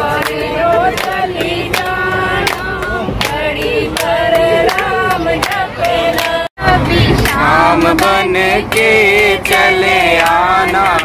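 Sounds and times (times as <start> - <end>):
group singing devotional song: 0.0 - 11.0
hand clapping: 0.1 - 6.4, 8.7 - 11.0.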